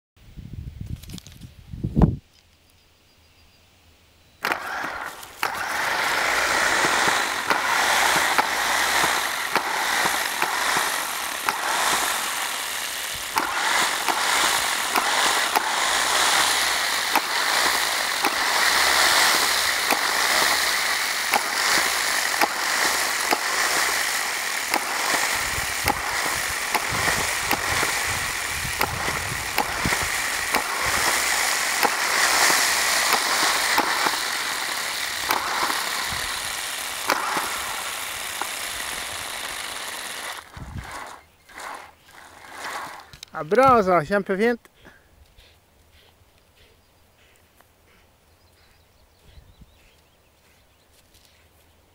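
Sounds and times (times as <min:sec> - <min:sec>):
lure machine motor whirring: 0:04.4 - 0:43.8.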